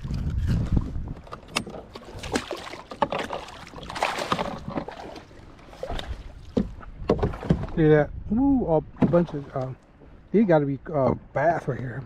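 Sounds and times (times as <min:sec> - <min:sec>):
fish splashing at water surface: 0:02.0 - 0:06.6.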